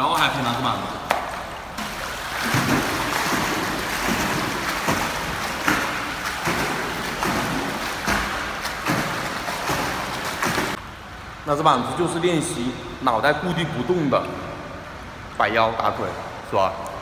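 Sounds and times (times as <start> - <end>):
pool water splashing from kicks: 0.0 - 10.8.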